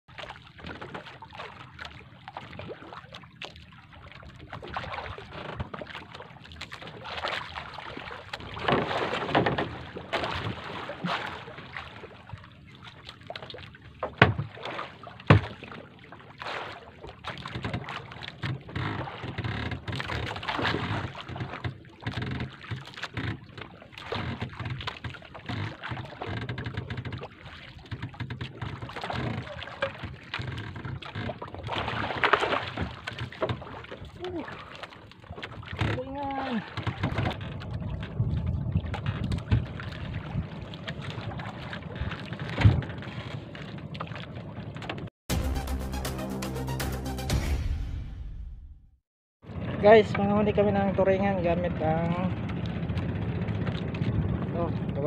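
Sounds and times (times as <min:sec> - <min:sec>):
water slapping against boat: 0:00.1 - 0:45.1, 0:49.4 - 0:55.0
wind on microphone: 0:37.0 - 0:43.0, 0:49.5 - 0:55.0.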